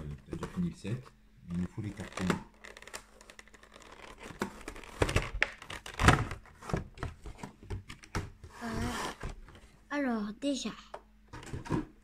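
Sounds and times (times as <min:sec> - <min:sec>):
plastic packaging clicks and crinkles: 0:01.6 - 0:08.3.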